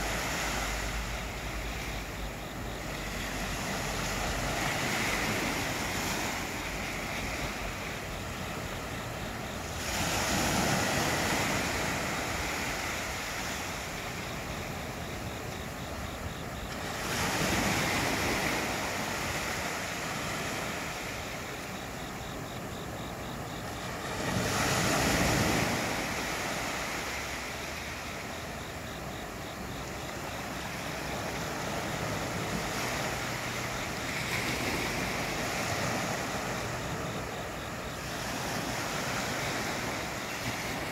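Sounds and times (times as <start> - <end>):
waves washing on sandy beach: 0.0 - 40.9.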